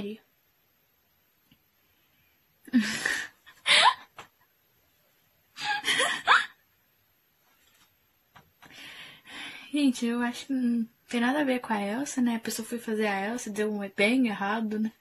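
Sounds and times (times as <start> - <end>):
young woman laughing: 2.7 - 4.2, 5.6 - 6.6.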